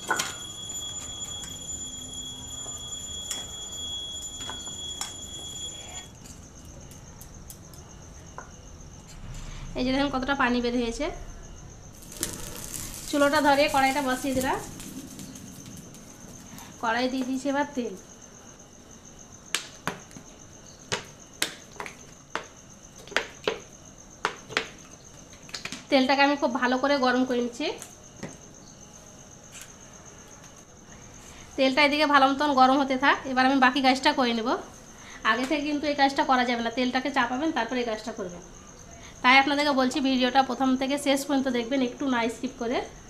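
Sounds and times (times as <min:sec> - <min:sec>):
steady high-pitched tones: 0:00.0 - 0:06.2, 0:11.9 - 0:18.6
crickets chirping: 0:00.0 - 0:43.0
wood fire crackling pops: 0:12.0 - 0:17.4.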